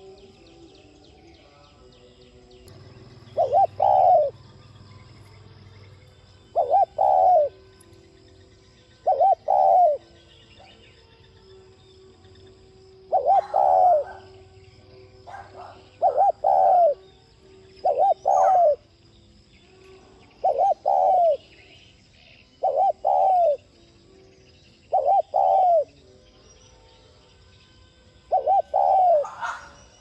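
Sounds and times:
dove cooing: 2.8 - 5.4, 6.5 - 7.6, 9.0 - 10.8, 13.0 - 14.5, 15.2 - 17.1, 17.8 - 18.9, 20.3 - 21.6, 22.6 - 23.7, 24.9 - 25.9, 28.3 - 30.0.

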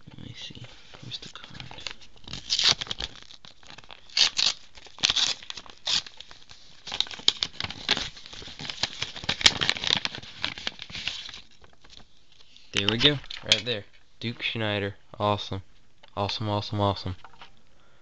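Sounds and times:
paper envelope rustling: 0.8 - 13.6.

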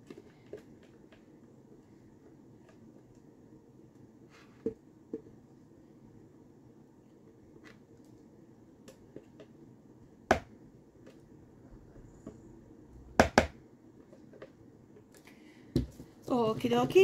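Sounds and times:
sharp plastic knocks: 13.2 - 13.6.

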